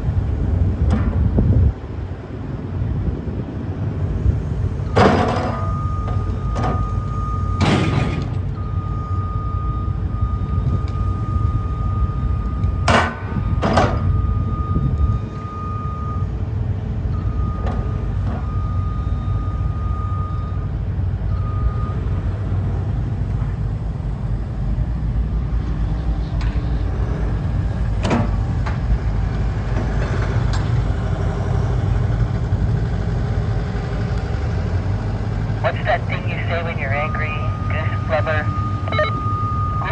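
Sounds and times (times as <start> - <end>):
excavator diesel engine running: 0.0 - 39.9.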